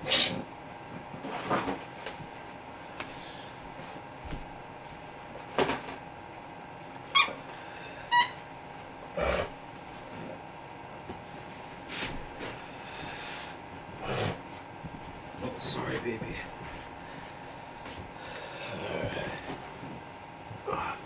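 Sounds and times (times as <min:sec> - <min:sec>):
soft bumps and rustles: 0:03.7 - 0:06.0
dog whining: 0:07.1 - 0:08.4.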